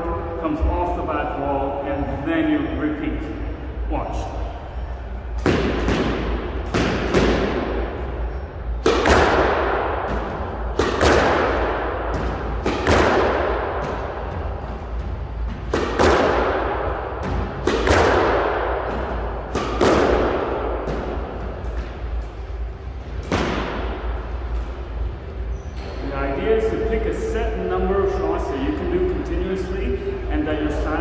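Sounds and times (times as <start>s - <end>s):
racket striking squash ball: 5.4s - 8.2s, 8.8s - 22.2s, 23.2s - 24.7s.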